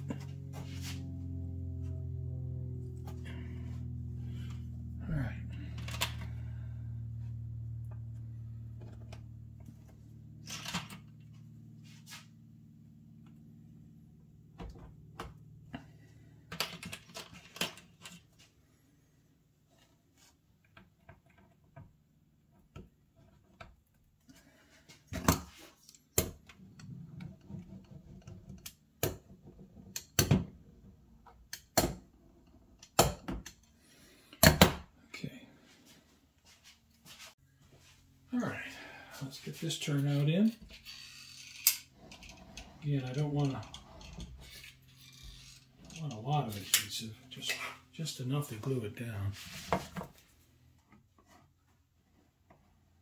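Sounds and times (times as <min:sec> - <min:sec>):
low hum: 0:00.0 - 0:19.4, 0:36.8 - 0:50.5.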